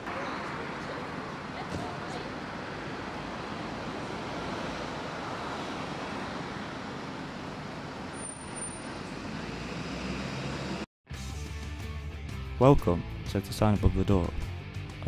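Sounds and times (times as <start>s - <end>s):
road traffic hum: 0.0s - 10.9s.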